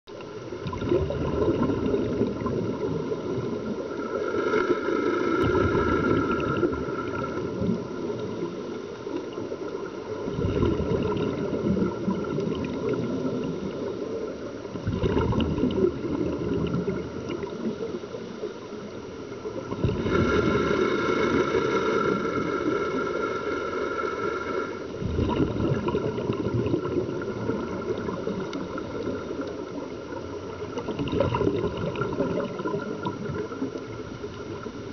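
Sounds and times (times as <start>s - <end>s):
underwater bubbly exhalations: 0.4s - 8.7s, 10.1s - 18.0s, 19.5s - 23.0s, 24.9s - 34.8s.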